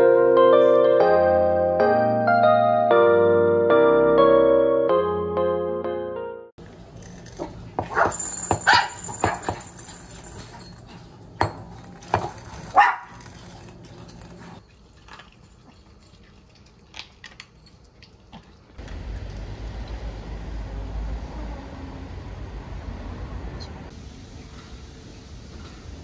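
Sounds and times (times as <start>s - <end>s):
small dogs yapping: 12.7s - 13.3s.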